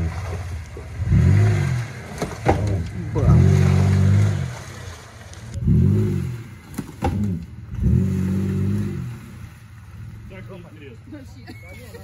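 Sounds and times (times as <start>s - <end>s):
engine revving: 0.0s - 9.6s.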